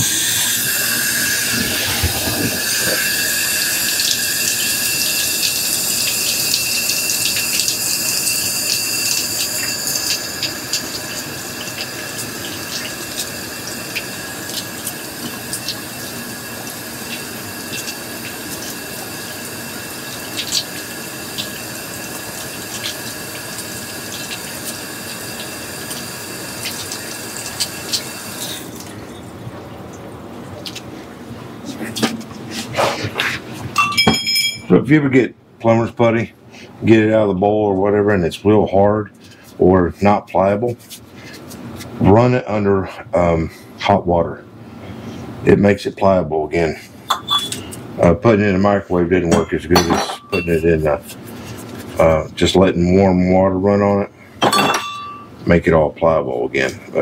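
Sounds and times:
faucet running into sink: 0:00.0 - 0:29.1.

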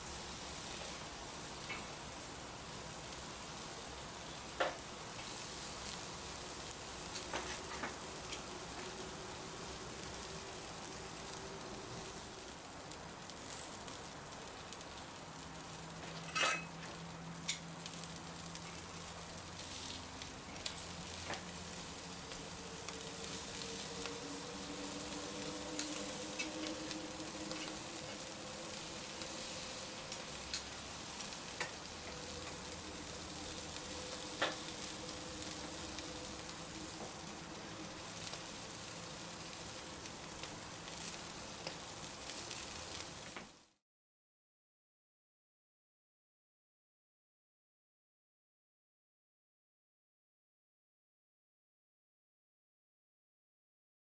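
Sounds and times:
meat sizzling on grill: 0:00.0 - 0:43.8
crackles and sharp clicks: 0:00.8 - 0:02.2, 0:04.2 - 0:15.1, 0:16.0 - 0:43.7.

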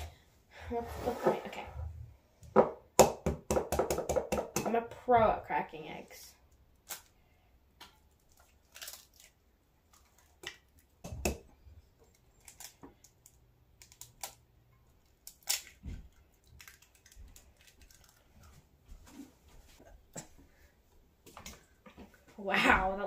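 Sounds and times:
eggshells cracking: 0:07.8 - 0:18.5.

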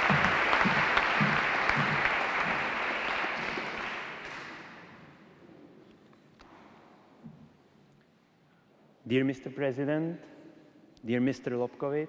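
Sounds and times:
audience applauding: 0:00.0 - 0:04.8.

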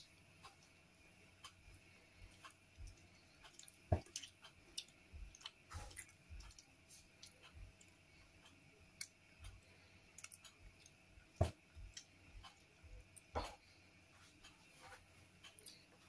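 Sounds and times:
faint irregular clicks: 0:00.0 - 0:13.7, 0:14.3 - 0:16.0.

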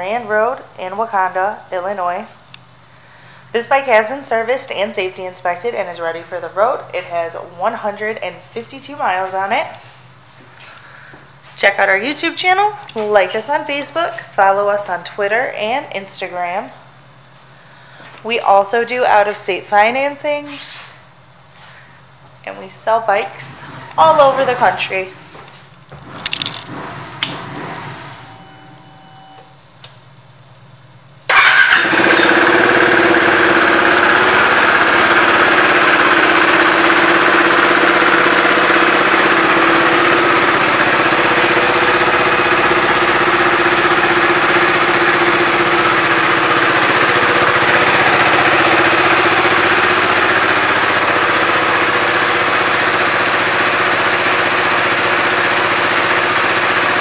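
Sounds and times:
motorcycle engine starting and idling: 0:02.5 - 0:15.6, 0:23.0 - 0:57.0.

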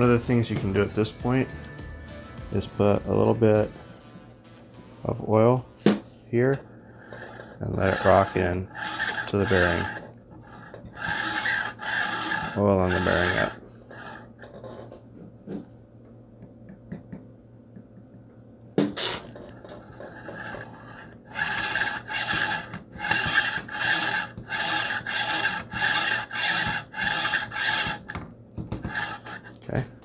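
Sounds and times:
metal rod rasping through bearings: 0:07.0 - 0:14.5, 0:19.0 - 0:29.6.

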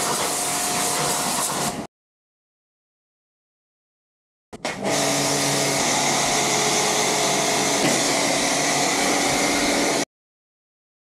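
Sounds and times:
pressure washer motor hum: 0:00.0 - 0:01.8, 0:04.8 - 0:10.0.

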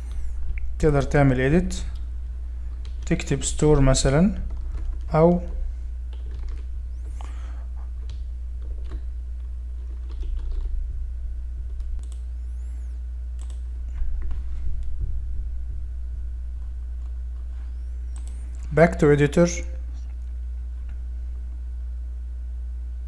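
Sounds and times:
low electrical hum: 0:00.0 - 0:23.0
keyboard keystrokes: 0:04.4 - 0:06.7, 0:09.8 - 0:10.7, 0:13.4 - 0:13.6
mouse clicks: 0:11.8 - 0:12.3, 0:18.1 - 0:18.4.

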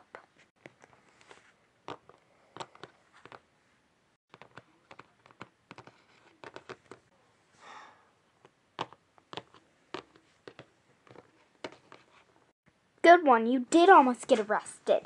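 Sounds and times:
plastic figurines clicking and tapping: 0:04.3 - 0:07.1, 0:08.8 - 0:12.0.

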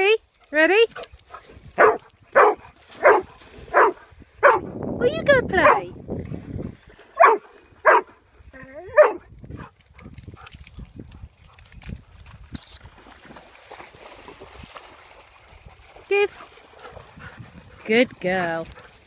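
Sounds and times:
dogs splashing in shallow water: 0:00.0 - 0:19.0
dog barking: 0:01.8 - 0:04.7, 0:05.6 - 0:05.9, 0:07.2 - 0:08.1, 0:09.0 - 0:09.2.

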